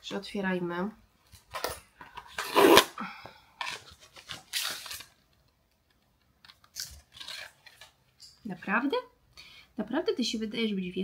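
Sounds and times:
packaging ripping: 3.6s - 5.2s, 6.4s - 8.0s.

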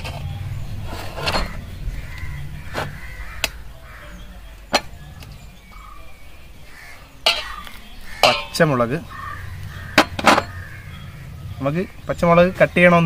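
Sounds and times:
potatoes knocking into metal bowl: 7.3s - 8.9s.

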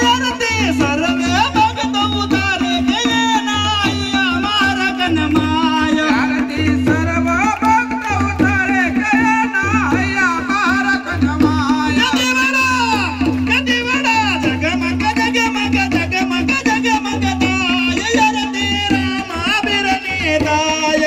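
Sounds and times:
even drum beat: 0.0s - 21.0s
man singing through a microphone: 0.0s - 21.0s
crowd clapping along: 2.2s - 21.0s.

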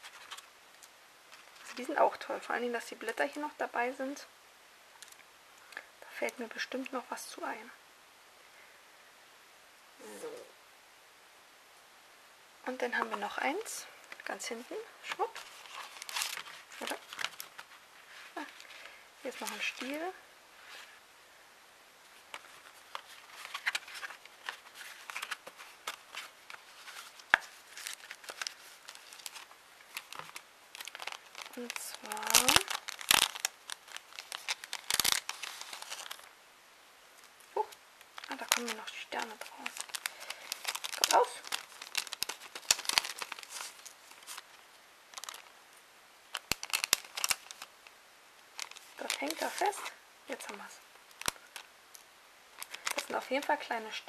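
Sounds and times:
paper rustling and clicking: 0.0s - 1.9s, 15.1s - 17.8s, 22.3s - 36.3s, 38.1s - 44.5s, 45.1s - 45.5s, 46.3s - 47.7s, 48.6s - 51.7s, 52.6s - 53.2s.

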